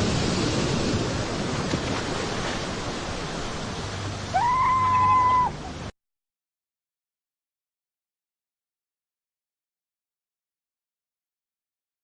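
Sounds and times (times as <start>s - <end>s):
surf washing over rocks: 0.0s - 5.9s
seal call: 4.3s - 5.7s.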